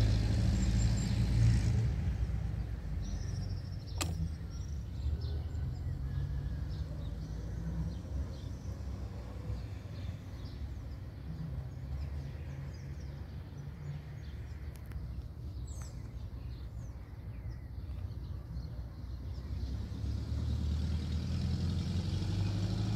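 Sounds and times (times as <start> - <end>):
vehicle engine running: 0.0 - 4.8.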